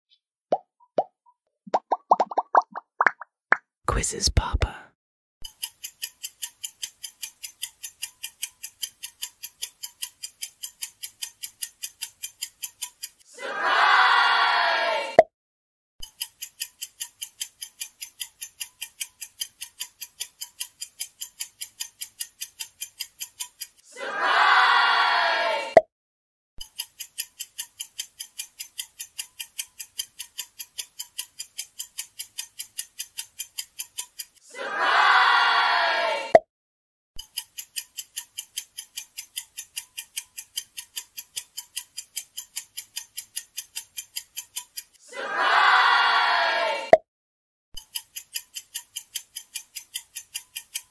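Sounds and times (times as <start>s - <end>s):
clock ticking: 5.4s - 13.2s, 16.0s - 23.8s, 26.6s - 34.4s, 37.2s - 45.0s, 47.8s - 50.9s
voices cheering: 13.3s - 15.2s, 23.9s - 25.8s, 34.5s - 36.4s, 45.1s - 47.0s.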